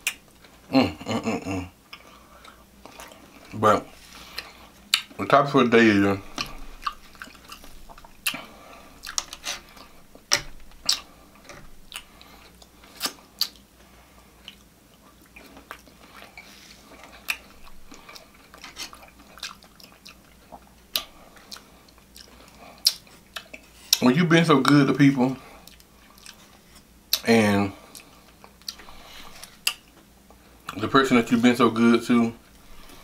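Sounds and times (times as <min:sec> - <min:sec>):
chewing food: 0:01.8 - 0:33.0
wet mouth clicks and smacks: 0:04.9 - 0:05.2, 0:11.9 - 0:13.7, 0:17.2 - 0:24.0, 0:29.4 - 0:30.0.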